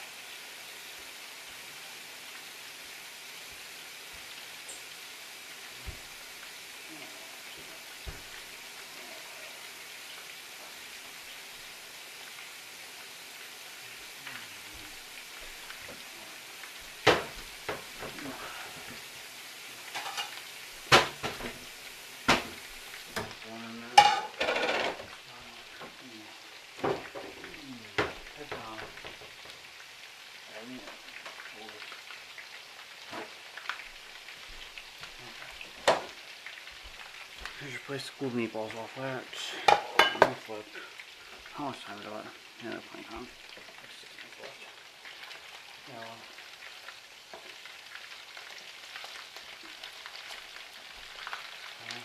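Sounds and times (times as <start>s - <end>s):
steady hiss: 0.0s - 52.0s
utensils clinking against pans: 19.9s - 21.6s, 24.0s - 25.1s, 39.6s - 40.5s.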